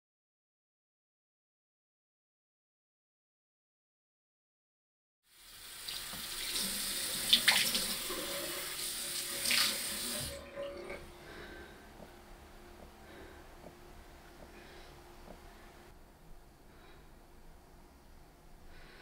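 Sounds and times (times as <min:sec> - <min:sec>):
water splashing in basin: 0:05.8 - 0:10.4.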